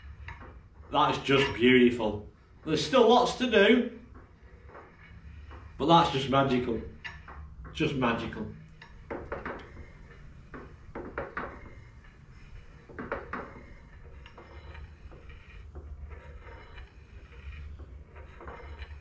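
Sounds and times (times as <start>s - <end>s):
metallic clicks and knocks of rods: 8.7s - 11.8s.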